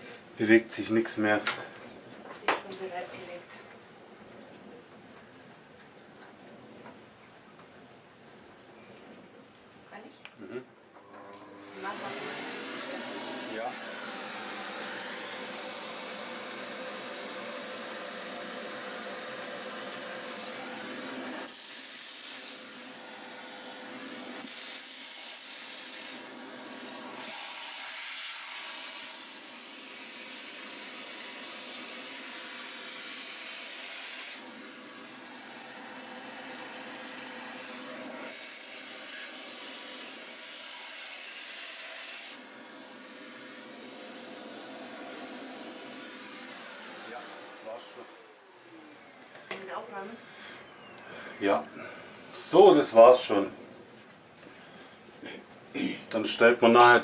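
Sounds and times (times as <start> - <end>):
vacuum cleaner running: 11.0 - 50.1.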